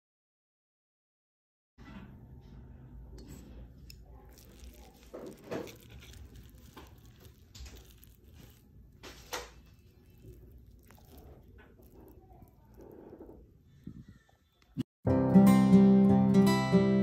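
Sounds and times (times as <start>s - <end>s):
fork cutting soft food: 3.2s - 13.3s.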